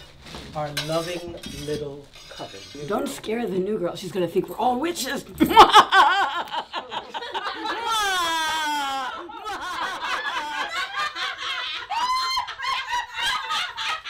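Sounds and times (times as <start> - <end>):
women laughing: 5.4 - 14.0.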